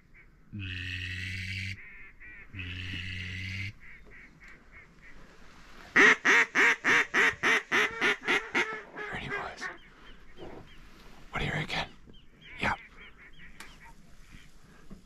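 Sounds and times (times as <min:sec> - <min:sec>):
duck call quacks: 0:00.6 - 0:04.9, 0:06.0 - 0:09.1
long steady duck call notes: 0:00.6 - 0:04.9, 0:06.0 - 0:08.8.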